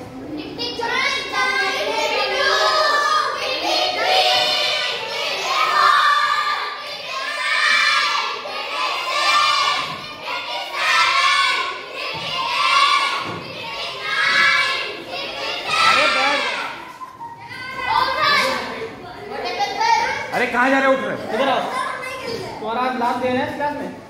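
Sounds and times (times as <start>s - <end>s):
children chanting in unison: 0.8s - 16.8s.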